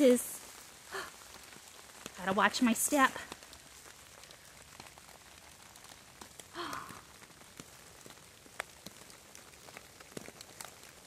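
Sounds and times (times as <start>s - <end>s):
rain on wet leaves: 0.0s - 11.0s.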